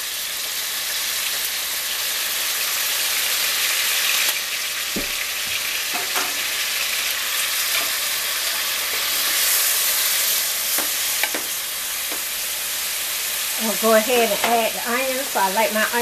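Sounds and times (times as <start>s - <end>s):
beef sizzling in a frying pan: 0.0s - 16.0s
spatula scraping and knocking pan: 5.0s - 6.5s, 7.7s - 9.6s, 10.7s - 12.4s.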